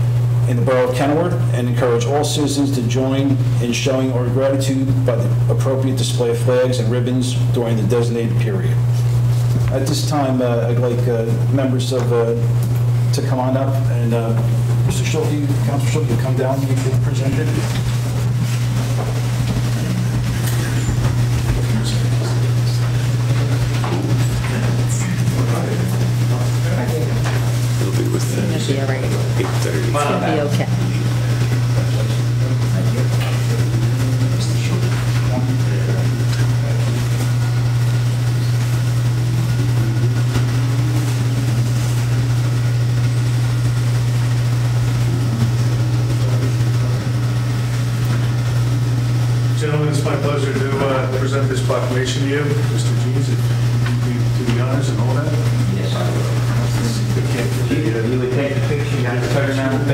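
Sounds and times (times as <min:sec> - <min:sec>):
loud steady low hum: 0:00.0 - 0:59.9
people moving about: 0:14.2 - 0:37.6, 0:50.0 - 0:59.9
faint voices: 0:18.9 - 0:37.4.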